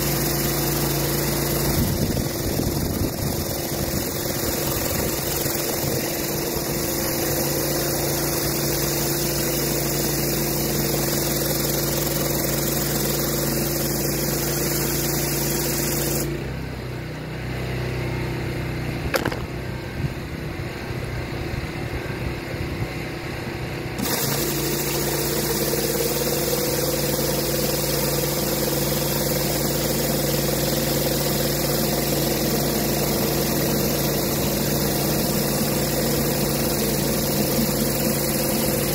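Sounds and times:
water spray hissing: 0:00.0 - 0:16.3
pressure washer engine running: 0:00.0 - 0:38.9.

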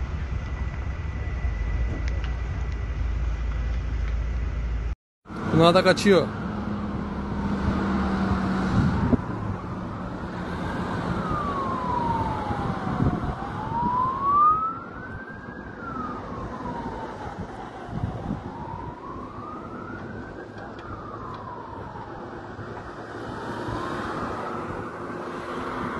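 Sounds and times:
emergency vehicle siren wailing: 0:05.3 - 0:25.9.

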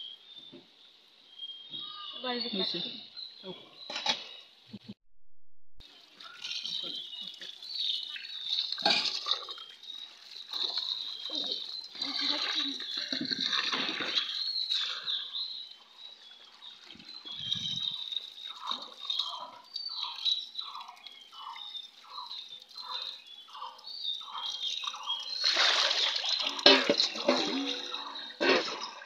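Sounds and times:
tap water splashing into bowl: 0:25.4 - 0:27.9.

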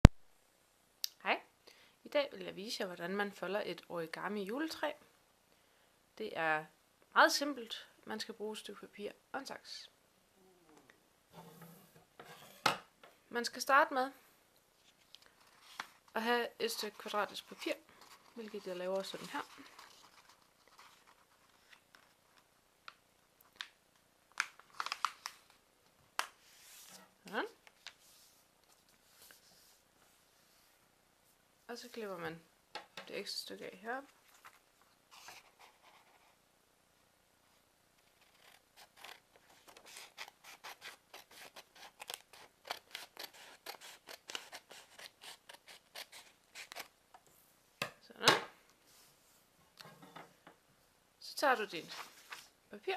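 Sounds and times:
paper being folded and creased: 0:14.8 - 0:16.1, 0:16.8 - 0:22.5, 0:24.4 - 0:25.6, 0:38.0 - 0:46.9, 0:51.9 - 0:52.5
scissors snipping paper: 0:38.2 - 0:46.9.

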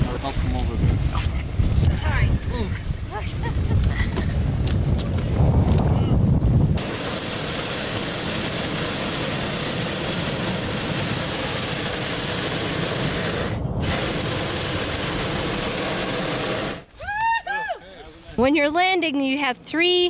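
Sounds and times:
propane burner blast: 0:05.4 - 0:16.9.

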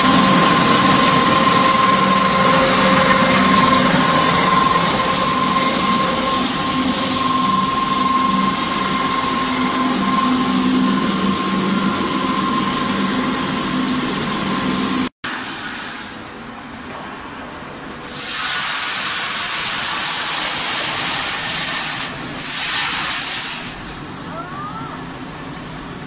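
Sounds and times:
loud rushing hiss: 0:00.0 - 0:16.6, 0:17.6 - 0:24.3
machinery humming: 0:00.0 - 0:26.0.

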